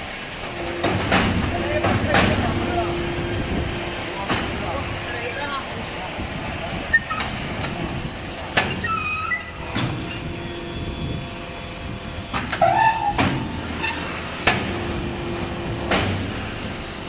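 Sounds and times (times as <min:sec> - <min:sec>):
brick machine running hum: 0:00.0 - 0:17.0
metal knocks and clanks: 0:00.6 - 0:02.9, 0:08.5 - 0:10.4, 0:12.3 - 0:14.9
short machine squeals: 0:05.5 - 0:07.4, 0:08.7 - 0:11.2, 0:12.2 - 0:14.2.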